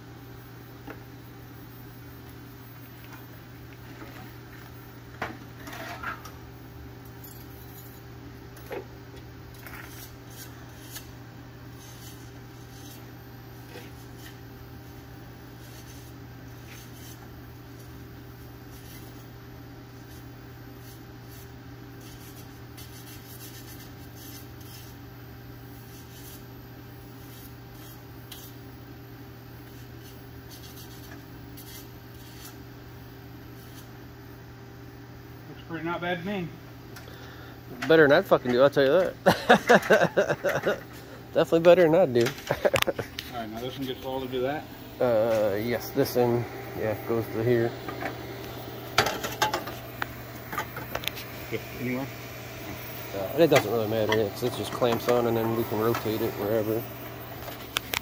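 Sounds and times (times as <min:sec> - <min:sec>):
welding hum: 0:36.7 - 0:58.0.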